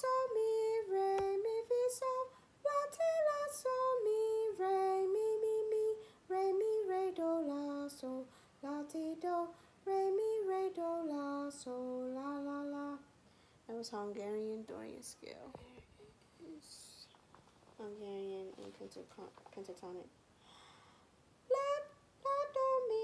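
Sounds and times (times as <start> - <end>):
woman singing unaccompanied: 0.0 - 13.1, 13.7 - 17.1, 21.5 - 23.0
woman breathing: 8.3 - 8.6, 13.2 - 13.7, 20.3 - 21.2.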